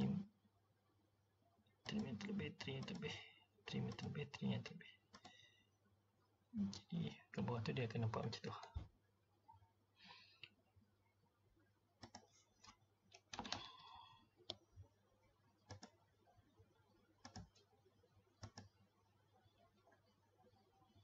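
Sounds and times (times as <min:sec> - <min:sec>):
computer mouse clicks: 0:01.8 - 0:03.1, 0:05.1 - 0:05.4, 0:12.0 - 0:13.8, 0:15.6 - 0:16.0, 0:17.2 - 0:17.7, 0:18.4 - 0:18.8.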